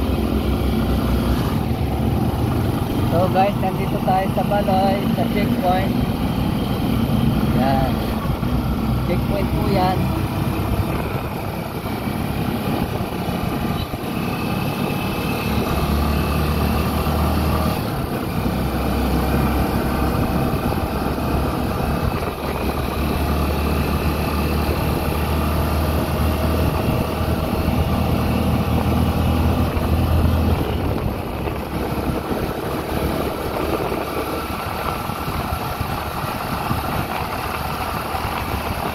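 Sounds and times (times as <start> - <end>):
vehicle engine humming: 0.0 - 38.9.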